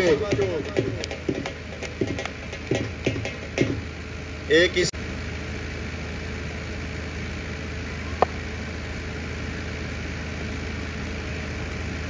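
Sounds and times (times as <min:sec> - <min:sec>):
engine humming evenly: 0:00.0 - 0:12.0
sharp knock: 0:00.1 - 0:04.0.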